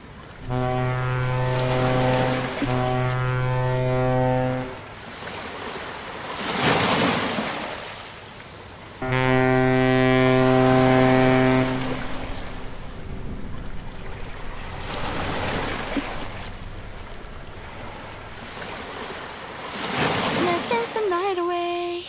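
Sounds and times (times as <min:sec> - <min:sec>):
waves breaking on shore: 0:00.0 - 0:21.4
wind: 0:00.0 - 0:22.0
ship's horn blast: 0:00.3 - 0:05.2, 0:09.0 - 0:20.4.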